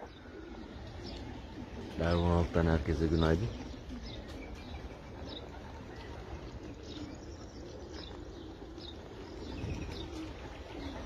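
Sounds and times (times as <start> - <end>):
pigeons cooing: 0.0 - 11.0
small birds chirping: 0.0 - 11.0.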